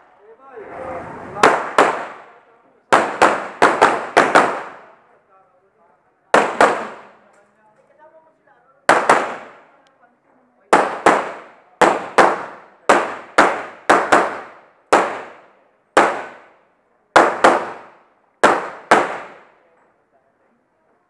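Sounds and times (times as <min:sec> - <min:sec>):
handgun shots: 0:06.4 - 0:07.2.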